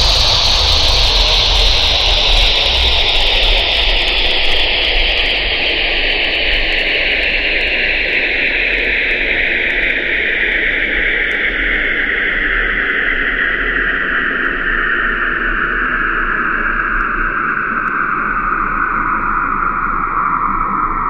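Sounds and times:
electronic noise drone: 0:00.0 - 0:06.8.

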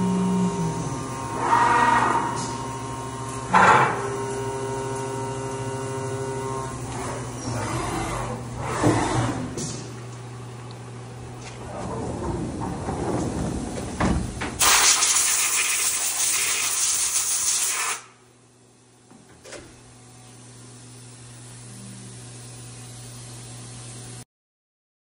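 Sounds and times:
machine low hum: 0:00.0 - 0:14.6, 0:18.1 - 0:24.2
enclosure door sliding open: 0:11.4 - 0:14.6
loud spray hiss: 0:14.6 - 0:18.0.

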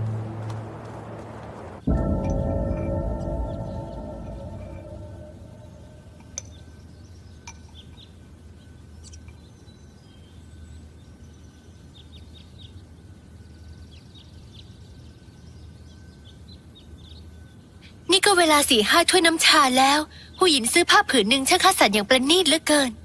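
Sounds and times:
music: 0:01.9 - 0:06.3.

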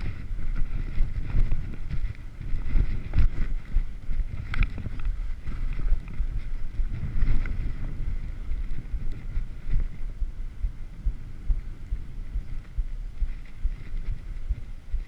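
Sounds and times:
skis scraping over snow: 0:00.0 - 0:10.0
wind buffeting microphone: 0:00.0 - 0:15.0.

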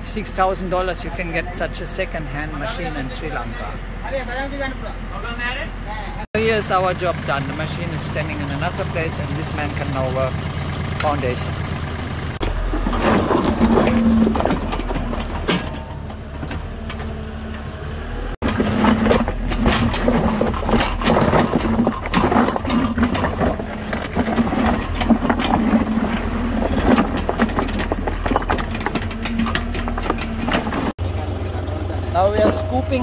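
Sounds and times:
diesel engine humming: 0:00.0 - 0:33.0
bucket scraping through rocks: 0:12.4 - 0:15.8, 0:18.4 - 0:31.0.

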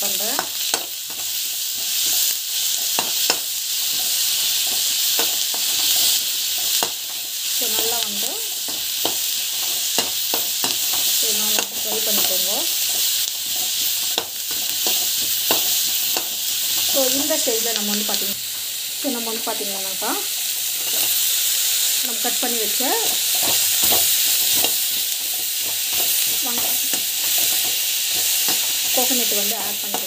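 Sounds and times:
food sizzling in oil: 0:00.0 - 0:30.0
spoon scraping a pan: 0:20.8 - 0:21.6, 0:22.3 - 0:30.0.

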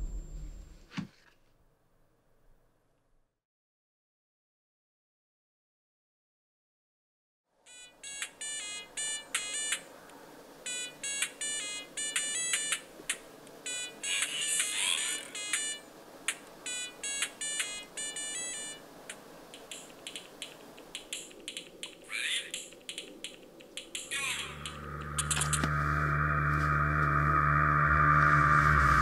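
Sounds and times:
mobile phone beeps: 0:07.7 - 0:09.9, 0:10.7 - 0:12.8, 0:13.6 - 0:15.9, 0:16.6 - 0:18.8.

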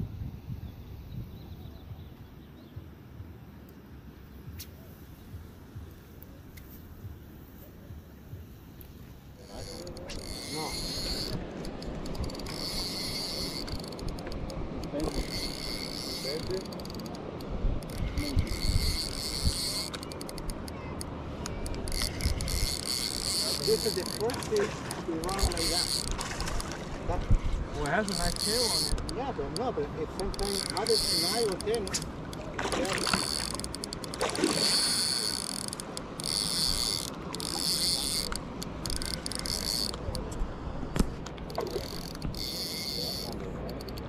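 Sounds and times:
fishing reel whirring and clicking: 0:08.6 - 0:26.7, 0:27.8 - 0:40.3, 0:41.2 - 0:44.0
fish splashing at surface: 0:31.9 - 0:35.2.

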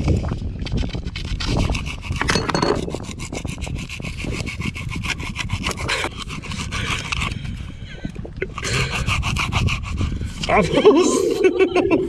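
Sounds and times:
hacksaw sawing: 0:01.2 - 0:07.4.

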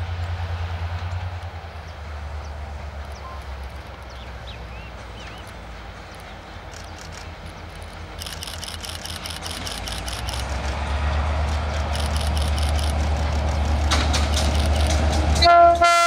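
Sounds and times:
diesel locomotive engine rumble: 0:00.0 - 0:16.0
birds chirping: 0:01.9 - 0:10.4
fast high-pitched ticking: 0:08.2 - 0:10.7, 0:11.8 - 0:15.0.

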